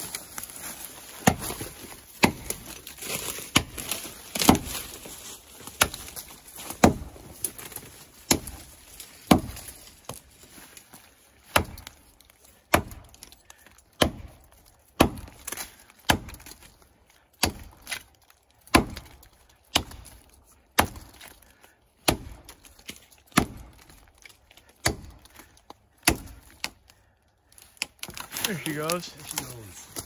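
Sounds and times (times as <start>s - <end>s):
axe chopping tree trunk: 0.4s - 10.3s, 11.4s - 27.0s.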